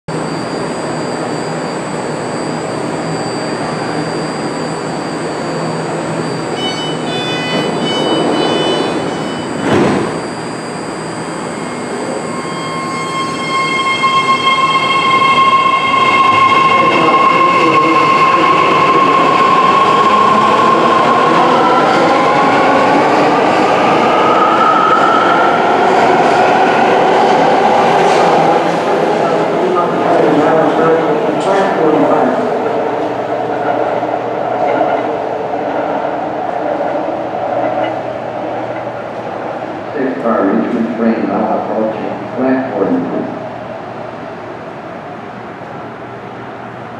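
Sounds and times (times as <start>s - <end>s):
short high door-closing beeps: 3.5s - 15.3s
train doors knocking shut: 7.3s - 10.2s.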